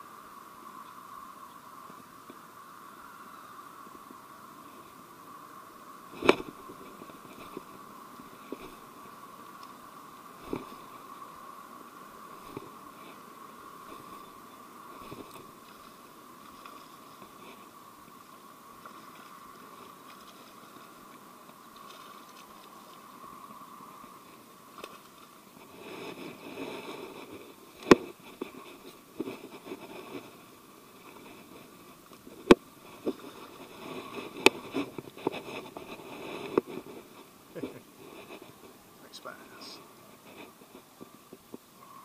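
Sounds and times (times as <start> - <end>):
rustling brush: 4.6 - 41.9
fishing gear handling: 8.4 - 10.9, 13.8 - 17.4.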